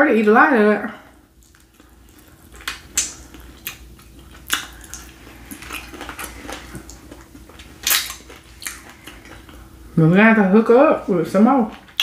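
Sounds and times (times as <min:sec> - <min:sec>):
wet mouth clicks and smacks: 0:01.4 - 0:09.6.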